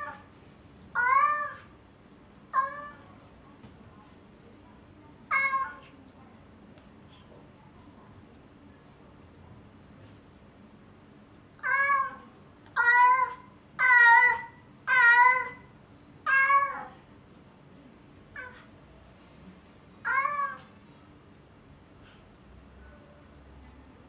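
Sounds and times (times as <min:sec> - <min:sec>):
cat meowing: 0:01.0 - 0:01.7, 0:02.5 - 0:03.0, 0:05.3 - 0:05.9, 0:11.6 - 0:12.2, 0:12.8 - 0:17.0, 0:18.3 - 0:18.7, 0:20.0 - 0:20.7.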